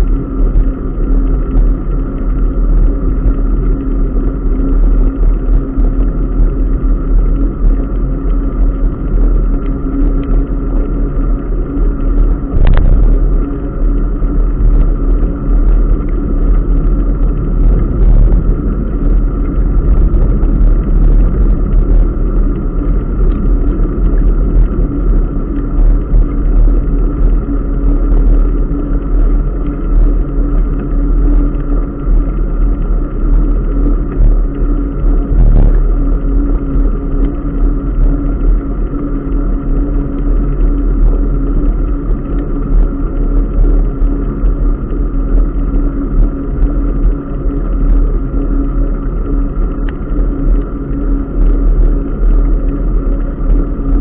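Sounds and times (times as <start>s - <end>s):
steady hum: 0.0s - 54.0s
wind on microphone: 0.0s - 54.0s
bicycle tyre noise on wet path: 11.7s - 29.9s, 30.7s - 37.2s.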